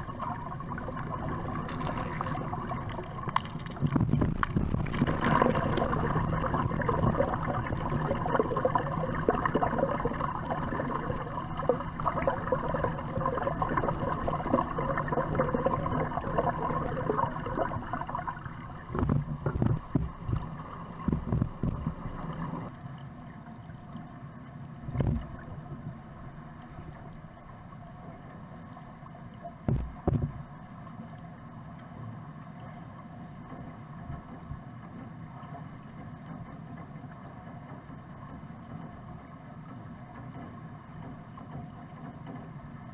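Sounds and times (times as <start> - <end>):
swimmer churning water underwater: 0.0 - 42.9
underwater hum: 0.0 - 42.9
knocks underwater: 3.3 - 7.6, 18.9 - 22.2, 24.9 - 25.5, 29.6 - 30.5
thumps underwater: 3.4 - 6.0, 18.9 - 22.1, 24.9 - 25.4, 29.6 - 30.5.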